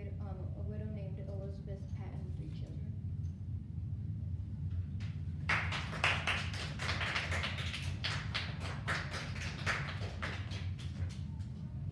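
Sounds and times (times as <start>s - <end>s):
low room hum: 0.0s - 11.9s
people clapping: 5.0s - 11.8s.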